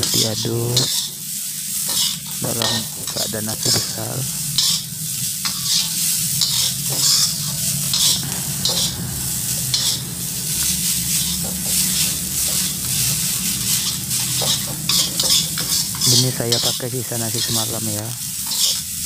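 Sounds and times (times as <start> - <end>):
metal spatula scraping wok: 0.0 - 19.0
rice sizzling in a wok: 0.0 - 19.0
steady low hum: 2.5 - 17.4.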